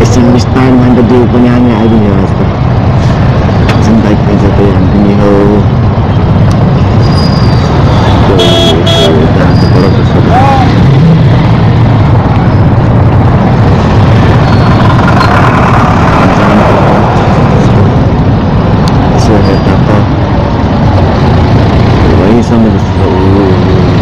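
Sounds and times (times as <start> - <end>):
motorcycle engine rumble: 0.0 - 24.0
road noise: 0.0 - 24.0
vehicle horn toots: 8.0 - 9.5.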